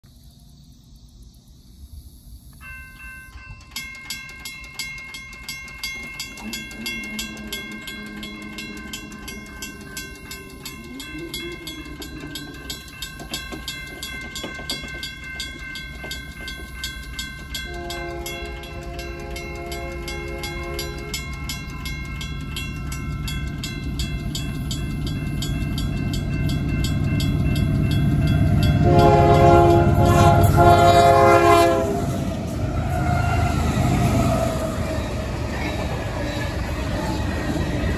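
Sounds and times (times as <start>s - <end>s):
train rumble: 0.1s - 37.9s
electronic crossing bell ringing: 2.6s - 31.8s
mechanical crossing bell striking: 2.6s - 31.8s
locomotive horn blast: 17.7s - 21.2s, 28.8s - 33.7s.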